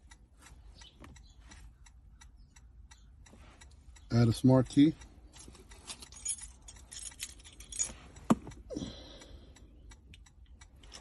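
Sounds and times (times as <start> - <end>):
car keys jingling: 4.7 - 8.8, 10.7 - 11.0.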